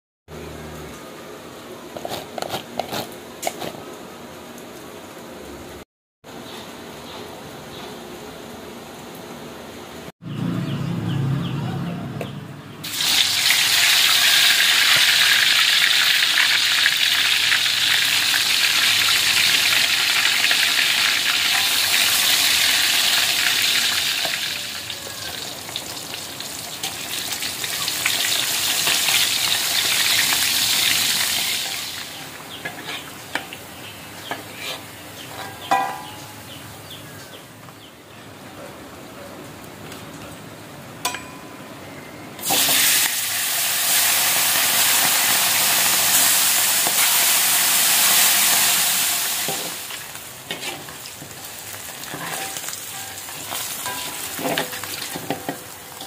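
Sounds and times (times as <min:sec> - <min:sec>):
oil sizzling in a wok: 0:12.8 - 0:36.8, 0:42.4 - 0:56.0
metal spatula clinking on wok: 0:41.0 - 0:41.6, 0:52.1 - 0:55.7.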